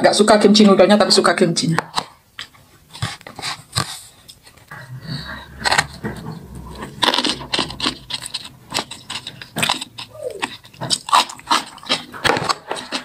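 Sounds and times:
eating mouth sounds: 0:02.4 - 0:13.0
wet slurps: 0:04.7 - 0:13.0.

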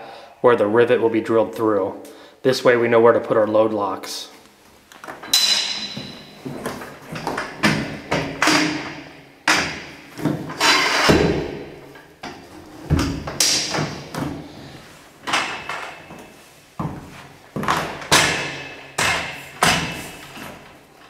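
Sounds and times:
metal cargo bars clanking: 0:05.0 - 0:14.5, 0:17.6 - 0:21.0.

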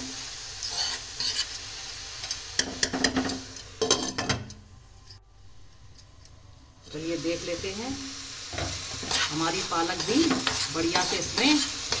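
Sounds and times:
vegetables sizzling: 0:00.0 - 0:04.2, 0:06.8 - 0:12.0.

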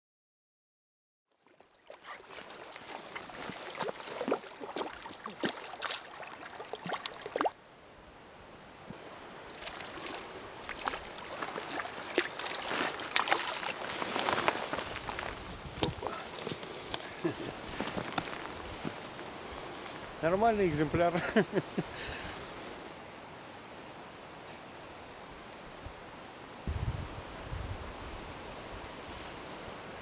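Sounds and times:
river water lapping at bank: 0:01.3 - 0:07.6, 0:08.8 - 0:23.3
small water splashes: 0:01.3 - 0:07.6, 0:09.5 - 0:17.5.

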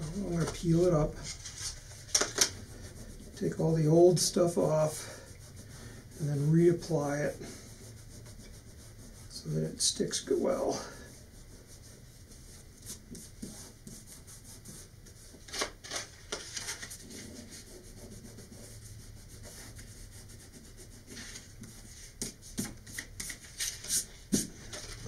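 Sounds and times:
paper rustling: 0:00.2 - 0:02.6, 0:15.3 - 0:17.7, 0:21.1 - 0:25.0
fingers scuffing paper: 0:11.6 - 0:18.8, 0:19.4 - 0:25.0.

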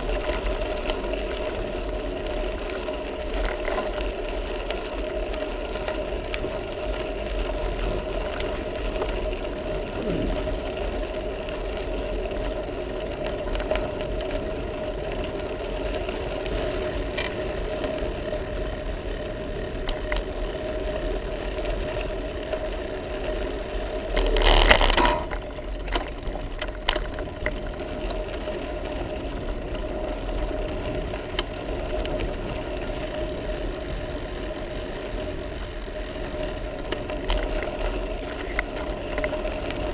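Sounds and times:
bicycle tyres rumbling on sand: 0:00.0 - 0:39.9
rush of noise: 0:09.2 - 0:11.0.

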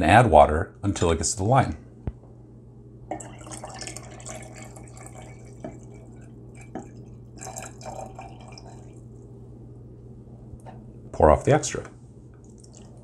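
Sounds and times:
water trickling into a glass jar: 0:03.1 - 0:09.2, 0:12.4 - 0:13.0.

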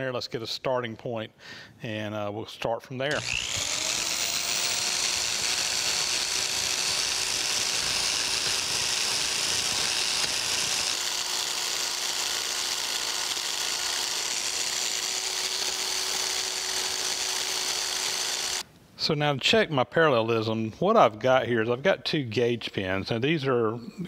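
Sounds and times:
power scraper scraping metal: 0:03.1 - 0:18.6.

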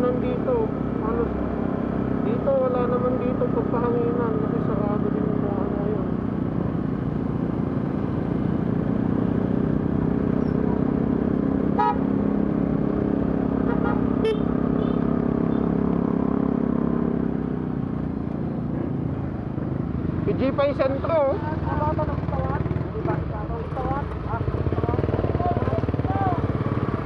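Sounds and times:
motorcycle engine running: 0:00.0 - 0:27.0
horn toots: 0:11.7 - 0:12.1, 0:13.6 - 0:15.7.

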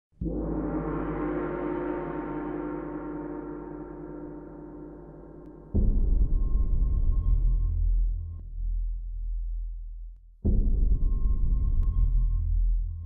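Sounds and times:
gong ringing: 0:00.2 - 0:05.9.

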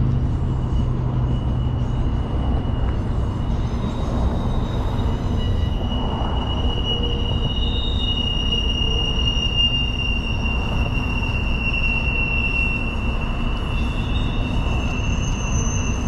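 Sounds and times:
low rumble of train wheels: 0:00.0 - 0:16.0
train wheel squeal: 0:00.0 - 0:16.0.

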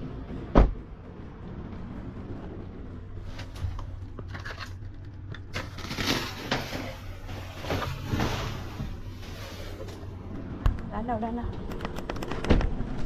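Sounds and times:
steady low hum: 0:00.0 - 0:13.0
plastic bags rustling: 0:04.3 - 0:10.0.

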